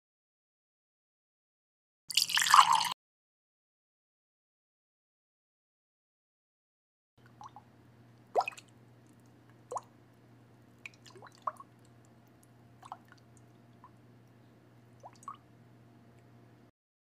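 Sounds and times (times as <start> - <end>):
low steady hum: 7.2 - 16.7.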